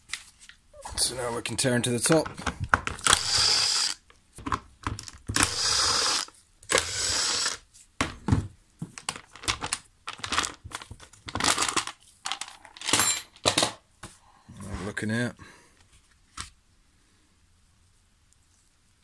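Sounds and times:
cordless driver spinning screws: 3.0 - 4.0, 5.3 - 7.6
plastic cover clicks and knocks: 4.4 - 5.4.

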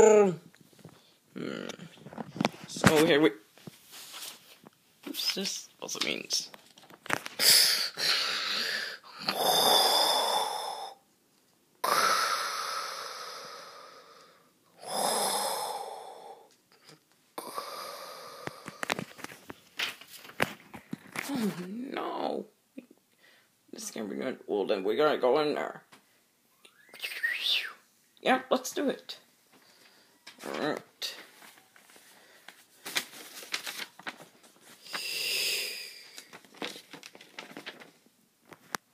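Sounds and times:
paper rustling and crinkling: 2.0 - 7.4, 18.8 - 21.6, 31.2 - 35.0, 36.1 - 38.8
person wheezing breathy mouth sounds: 7.4 - 11.0, 11.8 - 16.5, 17.4 - 19.3, 21.2 - 21.9, 34.8 - 36.3.

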